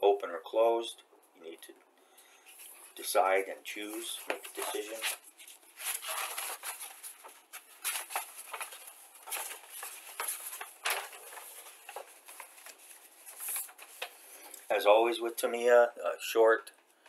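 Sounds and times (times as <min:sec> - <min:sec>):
paper pages turning and rustling: 0:03.8 - 0:14.7.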